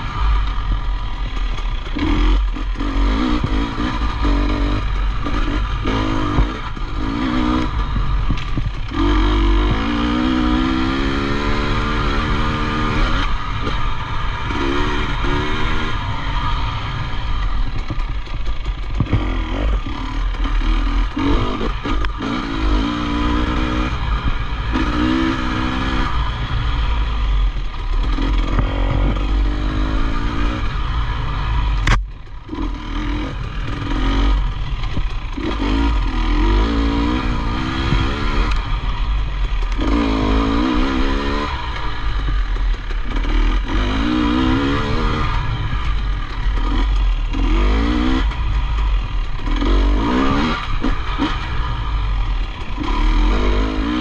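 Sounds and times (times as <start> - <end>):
motorcycle engine revving: 0.0 - 54.0
sharp click: 31.8 - 32.2.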